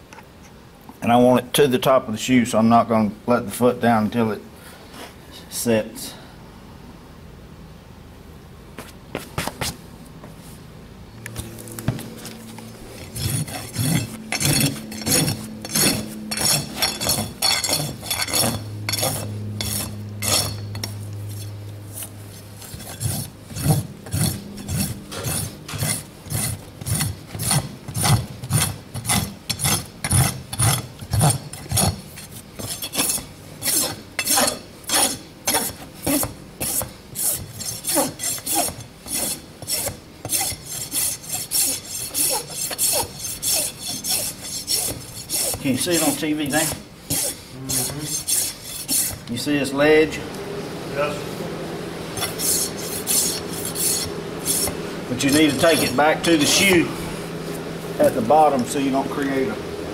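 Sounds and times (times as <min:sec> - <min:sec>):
hoof rasp scraping: 0:11.4 - 0:49.4, 0:52.1 - 0:59.5.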